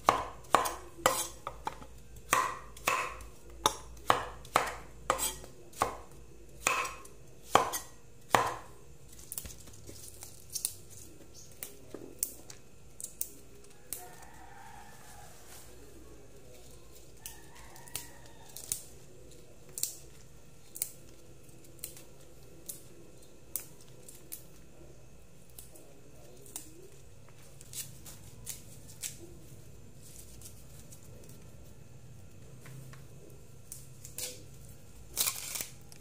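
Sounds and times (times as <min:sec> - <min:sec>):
leafy stems snapping: 0:19.7 - 0:20.0, 0:35.1 - 0:36.0.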